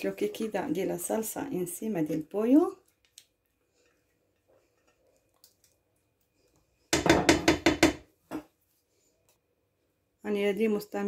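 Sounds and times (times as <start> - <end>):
glass dish knocking on pot: 7.0 - 8.0.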